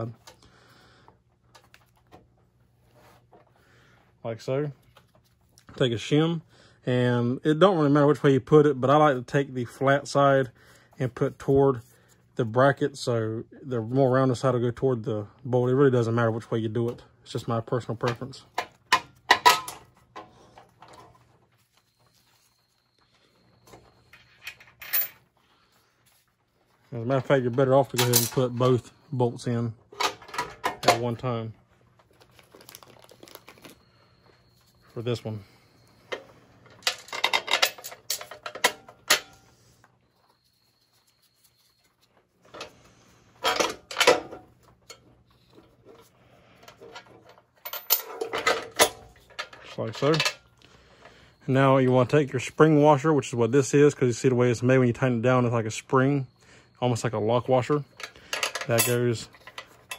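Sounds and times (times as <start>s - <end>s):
small metal hardware clinking: 27.8s - 28.8s, 36.1s - 39.5s, 46.6s - 50.5s, 57.8s - 59.9s.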